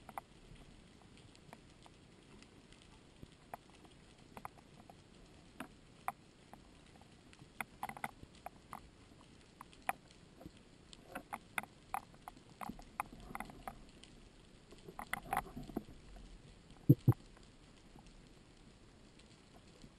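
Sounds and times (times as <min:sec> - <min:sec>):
faint steady hiss: 0:00.0 - 0:19.9
underwater sharp clicks: 0:09.6 - 0:14.1, 0:14.7 - 0:16.0, 0:16.8 - 0:18.1.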